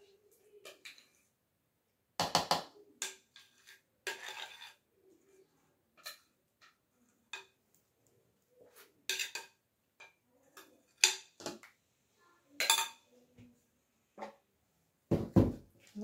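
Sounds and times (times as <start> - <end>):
metal spoon scraping glass bowl: 3.4 - 4.8.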